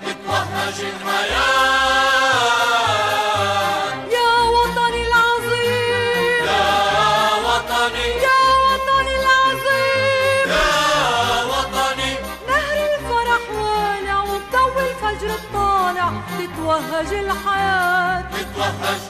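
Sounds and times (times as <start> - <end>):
choir holding long sung notes: 0.0 - 4.1, 6.4 - 8.2, 10.4 - 12.4, 18.3 - 19.0
instrumental backing music: 0.0 - 19.0.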